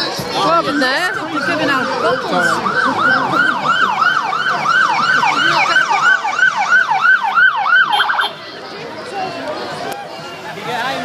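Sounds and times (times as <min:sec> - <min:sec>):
motorcycle siren yelping: 0:00.6 - 0:08.3.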